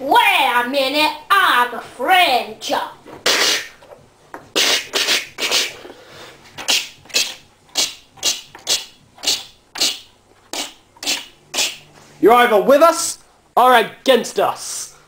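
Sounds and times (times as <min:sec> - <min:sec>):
person making hissing mouth sounds: 0:03.2 - 0:03.8, 0:04.5 - 0:11.9.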